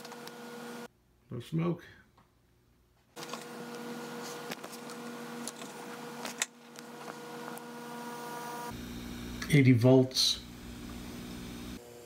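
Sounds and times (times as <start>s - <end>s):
electrical equipment hum: 3.0s - 12.0s.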